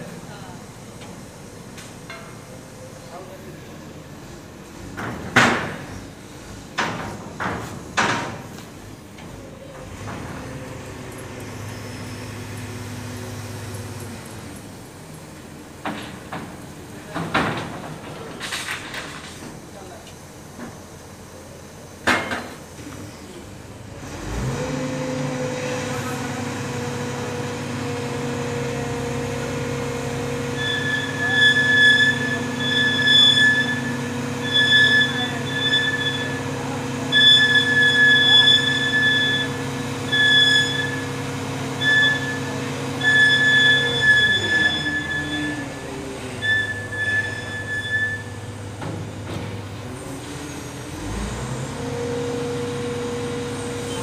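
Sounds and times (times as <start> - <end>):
crane engine revving: 7.8 - 15.8, 23.2 - 54.0
high-pitched squeal: 30.2 - 41.2, 41.8 - 48.4.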